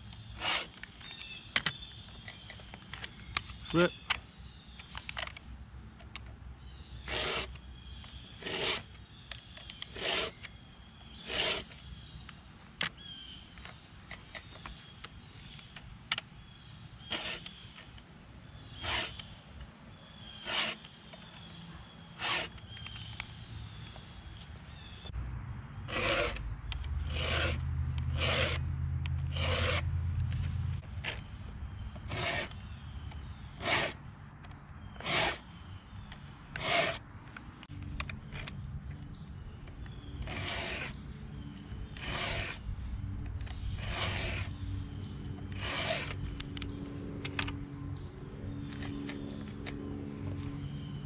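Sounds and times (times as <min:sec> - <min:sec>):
insects chirring: 0:00.0 - 0:51.0
file rasping on chainsaw chain: 0:00.4 - 0:00.8, 0:07.0 - 0:07.6, 0:08.4 - 0:08.9, 0:09.9 - 0:10.5, 0:11.2 - 0:11.8, 0:17.1 - 0:17.5, 0:18.8 - 0:19.2, 0:20.4 - 0:20.9, 0:22.2 - 0:22.6, 0:25.9 - 0:26.4, 0:27.0 - 0:28.6, 0:29.2 - 0:29.9, 0:32.0 - 0:32.6, 0:33.6 - 0:34.0, 0:35.0 - 0:35.4, 0:36.6 - 0:37.0, 0:40.2 - 0:41.0, 0:41.9 - 0:42.6, 0:43.7 - 0:44.6, 0:45.5 - 0:46.2.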